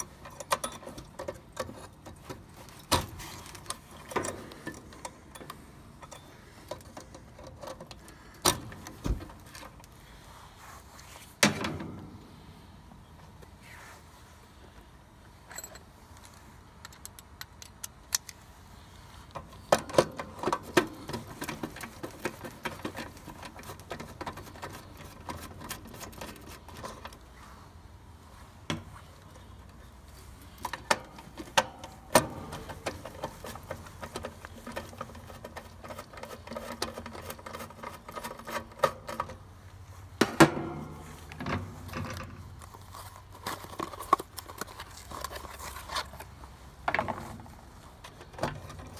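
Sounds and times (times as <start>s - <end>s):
hand tools clicking and rattling: 0.0s - 10.0s, 15.5s - 18.4s, 19.3s - 27.3s, 29.2s - 39.5s.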